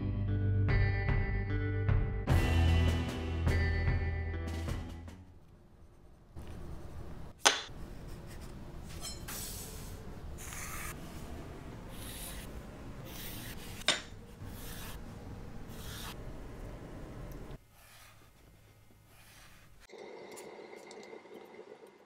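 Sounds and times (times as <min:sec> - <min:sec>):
pencil scratching on wood: 0:10.4 - 0:11.0, 0:11.9 - 0:12.5, 0:13.1 - 0:15.0, 0:15.7 - 0:16.2, 0:17.7 - 0:19.9.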